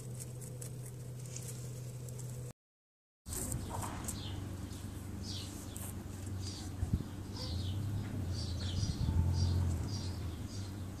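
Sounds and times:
birds chirping: 0:03.5 - 0:11.0.

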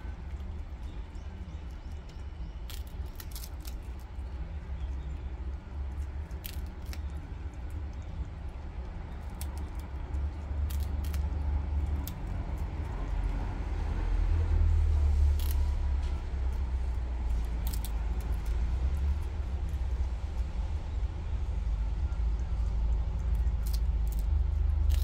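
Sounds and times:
steady low rumble: 0:00.0 - 0:25.0
small crisp crunches: 0:00.2 - 0:04.3, 0:05.4 - 0:13.4, 0:15.2 - 0:20.4, 0:23.3 - 0:25.0.

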